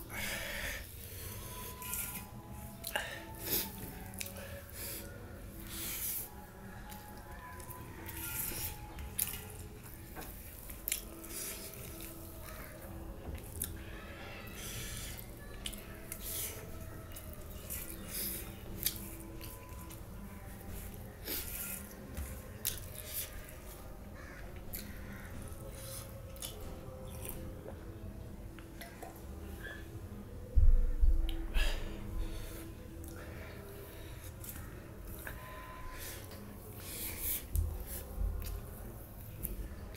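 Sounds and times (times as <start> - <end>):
wet chewing: 6.8 - 12.6, 15.1 - 23.5, 24.1 - 27.7.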